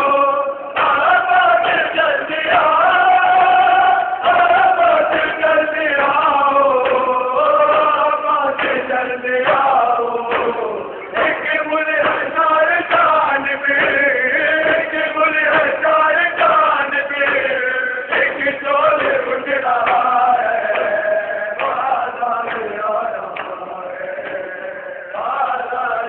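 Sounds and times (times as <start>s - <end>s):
crowd of men chanting: 0.0s - 26.0s
hands slapping chests: 16.4s - 21.0s, 21.6s - 23.6s.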